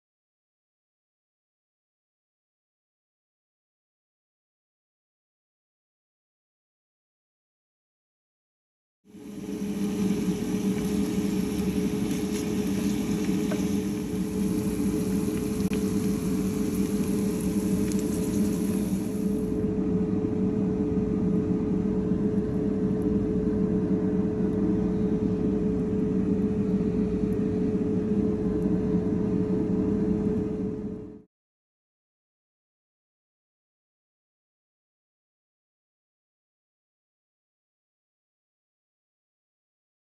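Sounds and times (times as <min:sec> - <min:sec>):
air fryer fan humming: 0:09.1 - 0:31.0
onions sizzling in oil: 0:09.2 - 0:19.4.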